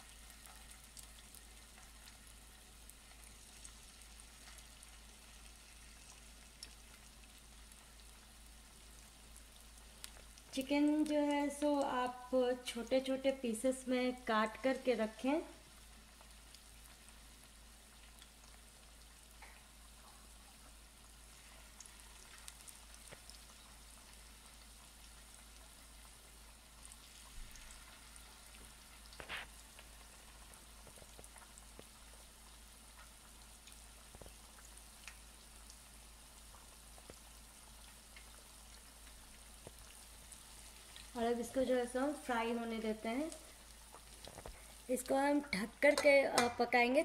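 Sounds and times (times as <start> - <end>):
chicken sizzling in oil: 0.0 - 47.0
oil crackling: 36.4 - 46.8.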